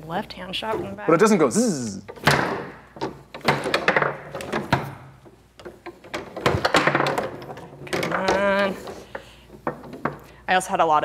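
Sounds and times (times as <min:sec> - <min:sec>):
foosball ball knocks and clacks: 0:02.1 - 0:10.3.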